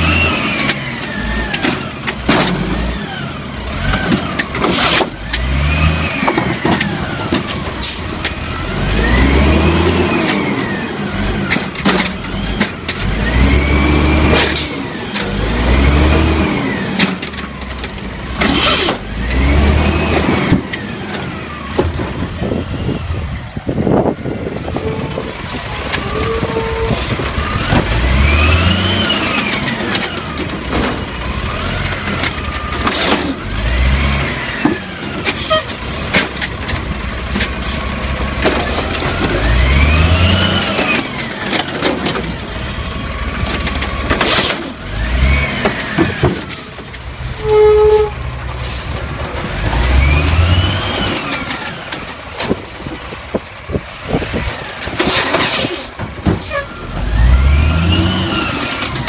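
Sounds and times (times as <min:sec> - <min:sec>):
garbage truck engine revving: 0:00.0 - 0:23.3, 0:24.1 - 0:47.4, 0:48.1 - 0:59.0.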